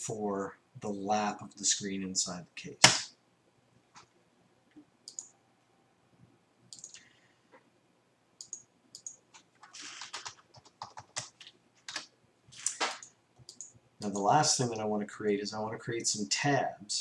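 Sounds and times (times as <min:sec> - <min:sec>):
faint keyboard typing: 0:03.9 - 0:05.4, 0:06.7 - 0:07.7, 0:08.4 - 0:15.4.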